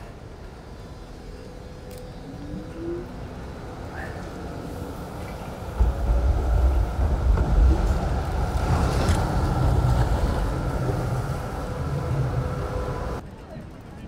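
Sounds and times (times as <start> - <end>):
heavy low street rumble: 0.0 - 14.0
wind buffeting microphone: 4.4 - 13.2.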